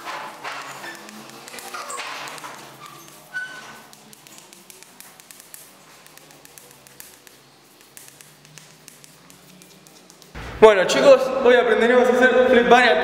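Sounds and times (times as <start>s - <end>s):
chalk tapping and scratching: 0.0s - 10.4s.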